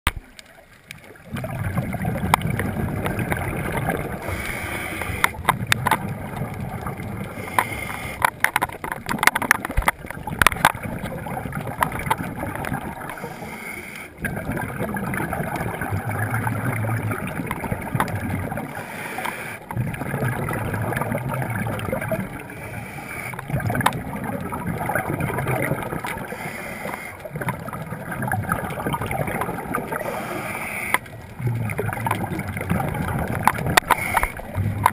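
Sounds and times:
underwater exhalation bubbles: 1.1s - 34.9s
regulator inhalation hiss: 4.2s - 5.2s, 7.4s - 8.2s, 13.2s - 14.1s, 18.8s - 19.6s, 22.6s - 23.4s, 26.3s - 27.2s, 30.0s - 31.0s
sharp clicks: 4.4s - 6.1s, 30.4s - 31.1s.

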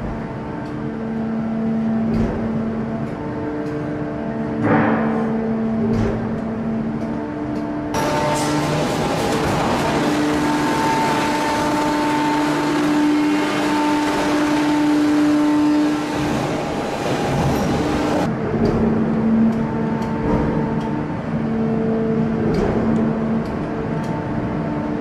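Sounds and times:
machine hum: 0.0s - 25.0s.

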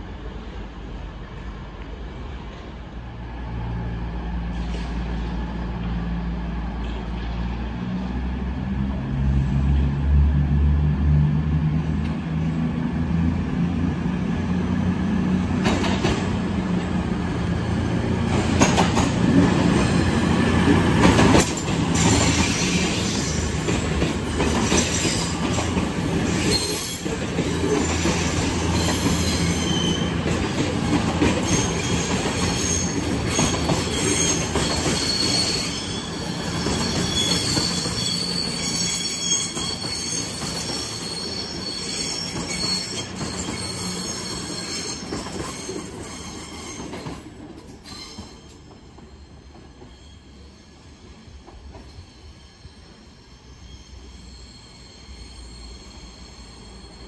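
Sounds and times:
diesel train passing: 0.0s - 57.0s
high-pitched wheel squeal: 26.3s - 30.3s, 31.4s - 47.1s, 47.8s - 51.2s, 51.9s - 57.0s.

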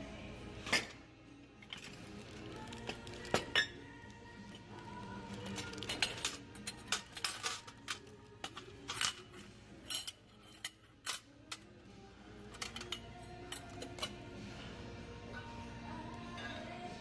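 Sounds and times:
faint background music: 0.0s - 17.0s
dishes and glassware clinking: 0.6s - 1.0s, 2.8s - 4.0s, 5.4s - 11.7s, 12.5s - 14.4s, 15.2s - 17.0s.

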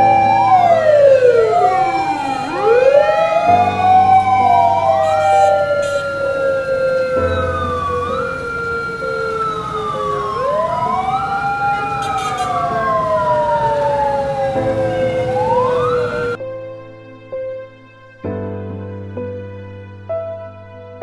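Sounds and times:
ambulance sirens wailing: 0.0s - 16.4s.

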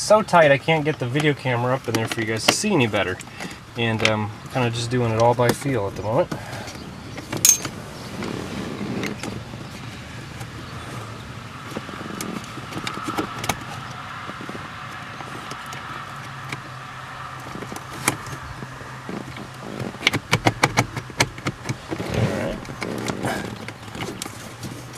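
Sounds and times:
knocks and rattles on plastic: 11.6s - 24.9s.

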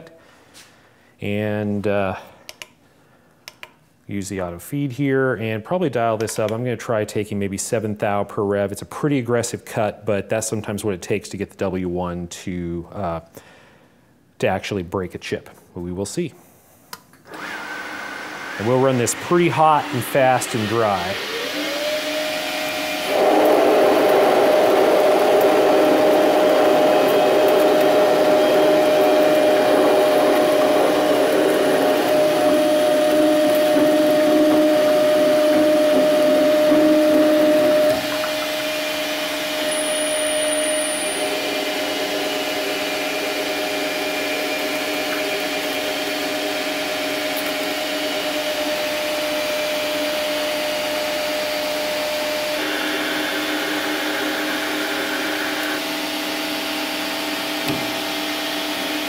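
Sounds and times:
lathe spindle whine: 17.3s - 59.0s
lathe tool cutting steel: 17.4s - 56.4s.

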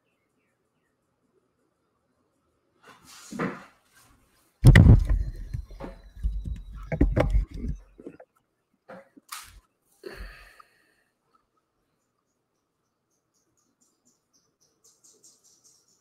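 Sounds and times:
knocks and thumps: 4.6s - 8.2s.

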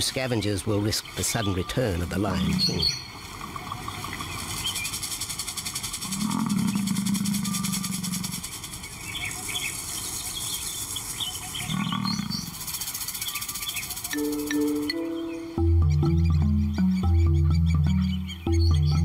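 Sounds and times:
lion roaring: 2.3s - 2.9s, 6.0s - 8.4s, 11.6s - 12.6s.

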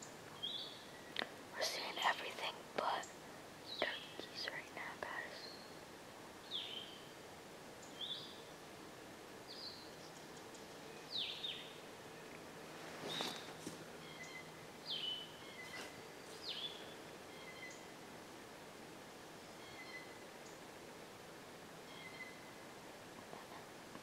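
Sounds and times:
songbird calling: 0.0s - 2.0s, 3.0s - 5.8s, 6.4s - 7.2s, 7.8s - 8.5s, 9.5s - 12.4s, 13.0s - 17.9s, 19.5s - 20.6s, 21.8s - 22.6s.

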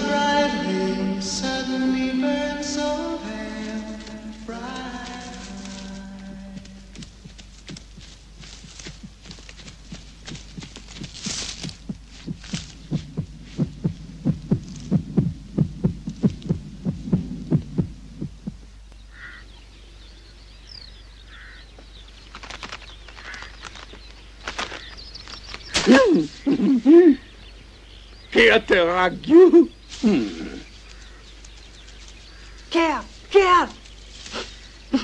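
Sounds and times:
heartbeat-like throbbing: 5.4s - 18.8s.

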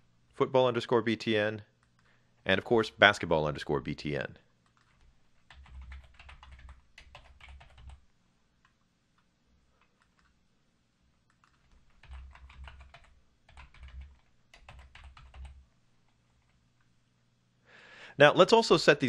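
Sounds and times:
typing on computer keyboard: 4.6s - 8.0s, 9.8s - 10.4s, 11.2s - 15.6s.

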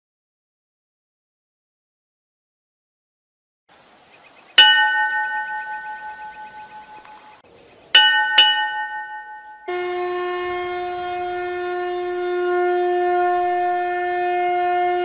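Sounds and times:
metal bell ringing: 4.6s - 7.4s, 8.0s - 9.7s
conch shell blown: 9.1s - 15.0s.

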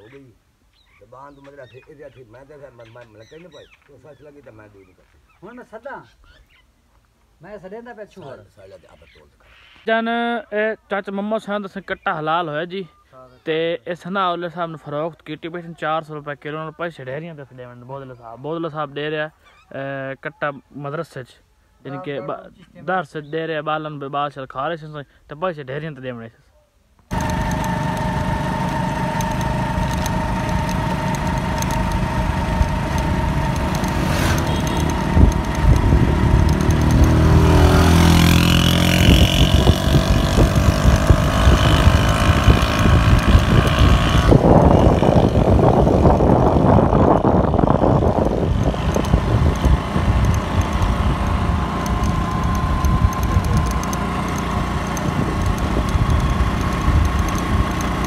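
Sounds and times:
motorcycle engine running: 27.1s - 58.0s
wind noise: 34.8s - 53.8s.

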